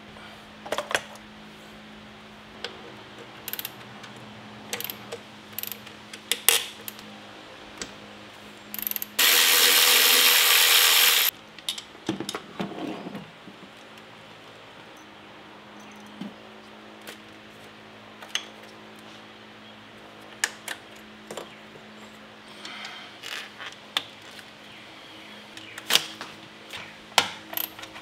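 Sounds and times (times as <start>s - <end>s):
cordless electric ratchet spinning: 8.8s - 11.3s.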